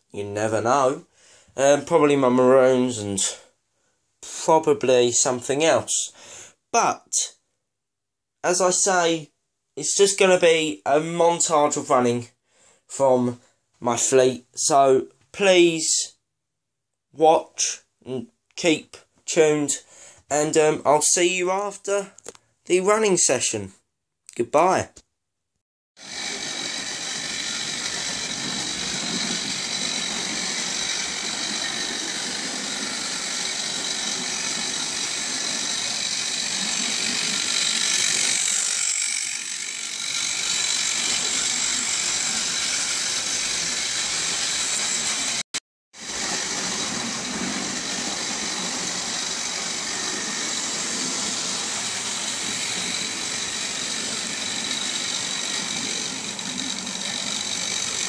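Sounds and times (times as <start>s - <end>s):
model train motors humming: 26.0s - 45.4s, 46.0s - 58.0s.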